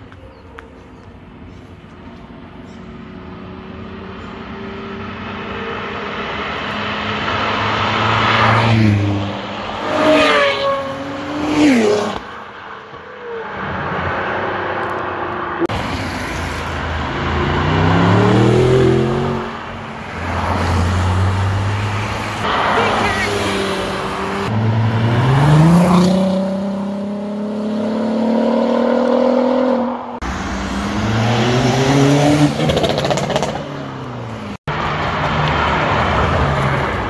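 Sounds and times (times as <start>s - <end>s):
cars driving past: 0.0s - 37.0s
car accelerating: 13.2s - 37.0s.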